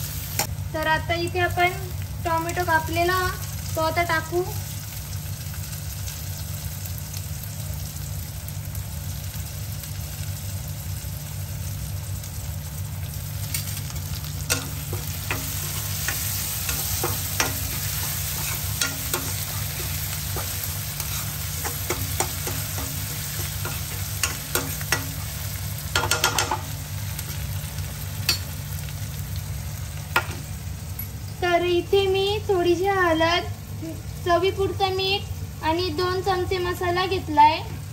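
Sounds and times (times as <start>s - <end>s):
food sizzling in oil: 0.0s - 37.9s
metal utensil scraping pan: 14.5s - 25.2s.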